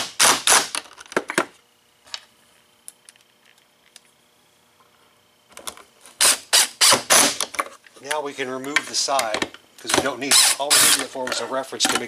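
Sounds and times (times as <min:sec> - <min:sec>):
impact driver driving screw: 0:00.0 - 0:00.8, 0:06.2 - 0:07.5, 0:10.3 - 0:11.1.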